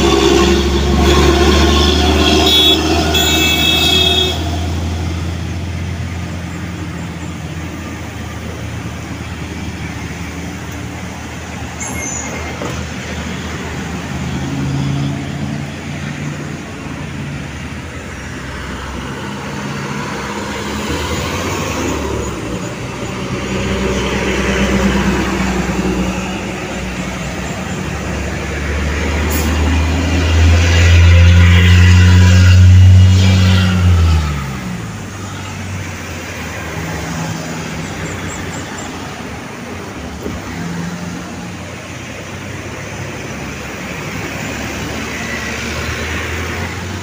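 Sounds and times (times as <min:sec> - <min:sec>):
vehicle horn: 0:00.0 - 0:04.8
trucks and cars passing: 0:00.0 - 0:47.0.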